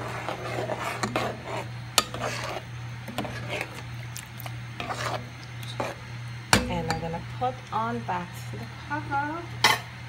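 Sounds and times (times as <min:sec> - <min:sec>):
metal spoon scraping a pot: 0:00.0 - 0:07.1
spoon knocking on pot: 0:06.5 - 0:07.2.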